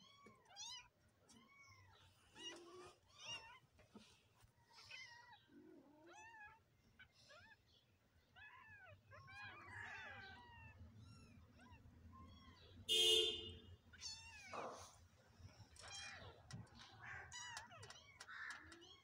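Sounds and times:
kittens mewing: 4.8s - 12.8s, 13.9s - 19.0s.

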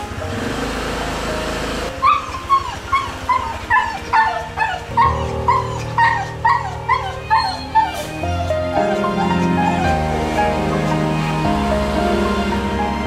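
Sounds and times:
dog whining in high yelps: 1.9s - 11.0s.

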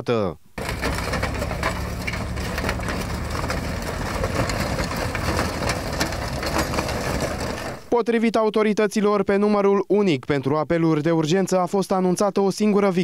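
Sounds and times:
crackling and clicking noises: 0.6s - 7.9s
engine idling: 0.6s - 7.9s.

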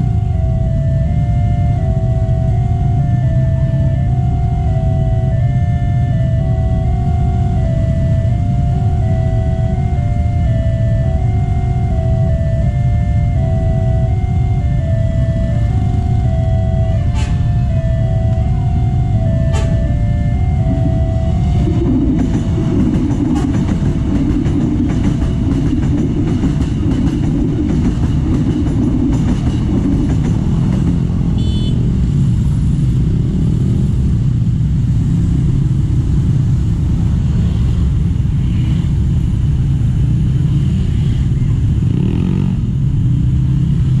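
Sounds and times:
crossing signal tone: 0.0s - 29.6s, 31.2s - 32.0s
electric train passing: 0.0s - 44.0s
motorcycle and car traffic: 0.0s - 44.0s
brief high horn toot: 17.0s - 17.8s, 19.4s - 20.1s.

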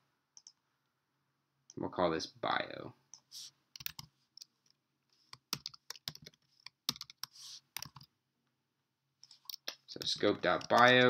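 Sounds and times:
typing on computer keyboard: 3.8s - 4.1s, 5.3s - 8.1s, 9.4s - 11.0s.

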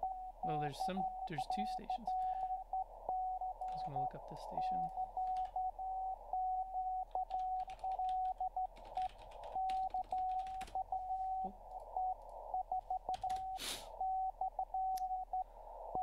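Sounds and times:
computer keyboard typing: 3.6s - 4.0s, 4.6s - 5.6s, 7.1s - 10.9s, 11.7s - 13.6s
radio band hiss: 13.5s - 14.0s.

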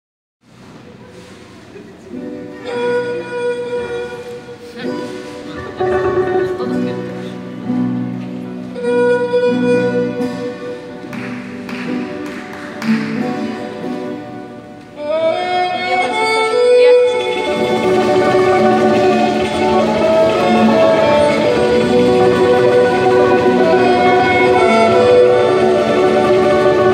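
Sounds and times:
plucked string instruments: 1.9s - 26.9s
violin melody: 2.1s - 26.9s
strummed acoustic guitar: 17.3s - 26.9s.

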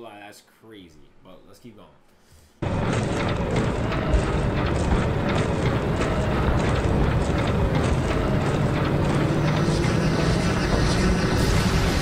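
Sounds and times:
engine-like rumble: 2.6s - 12.0s.

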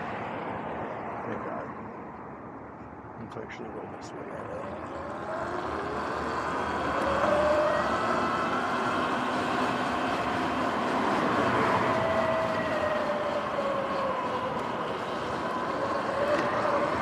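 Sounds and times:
electric motor whine: 4.4s - 17.0s.

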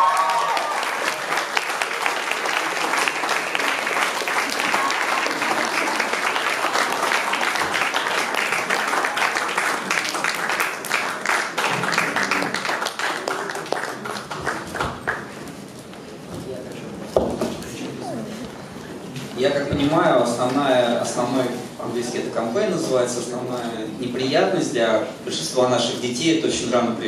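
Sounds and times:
audience applauding: 0.0s - 15.5s.

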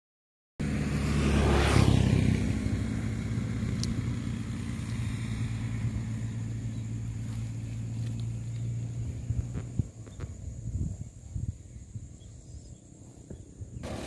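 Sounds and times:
vehicle passing by: 0.6s - 9.9s
low engine hum: 0.6s - 14.0s.

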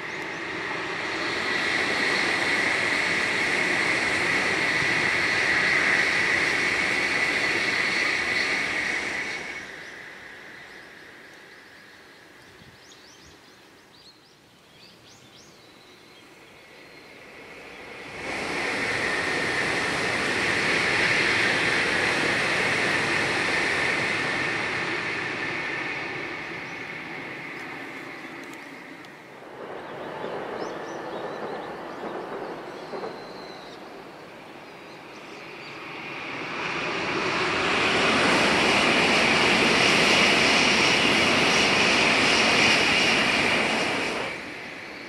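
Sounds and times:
train rushing past: 0.0s - 12.4s, 16.3s - 45.0s
faint bird chirps: 9.6s - 17.9s, 29.8s - 35.8s.

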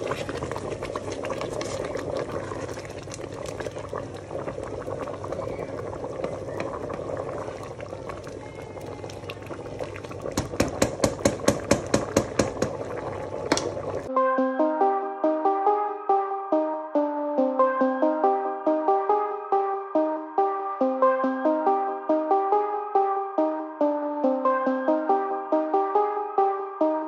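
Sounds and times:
sauce bubbling in a pot: 0.0s - 14.1s
electronic music: 14.1s - 27.0s.

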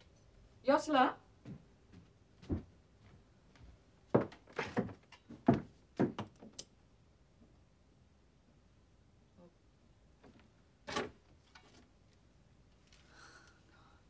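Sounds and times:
door knocks and thuds: 4.1s - 6.5s.

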